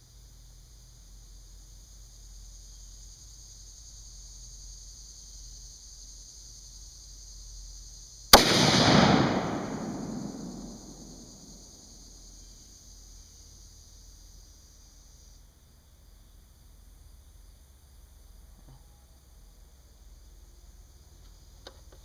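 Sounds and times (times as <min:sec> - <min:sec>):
rifle shot: 0:08.3 - 0:11.6.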